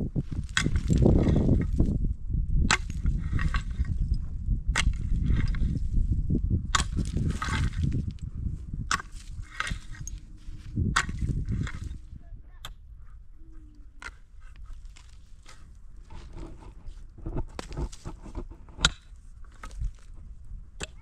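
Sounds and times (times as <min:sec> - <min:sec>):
short scraping rustle: 0:14.1 - 0:20.3.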